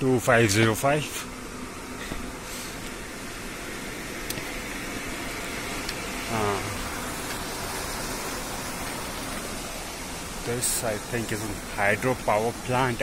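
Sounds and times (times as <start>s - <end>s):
turbine humming: 0.0s - 13.0s
stream rushing: 4.4s - 13.0s.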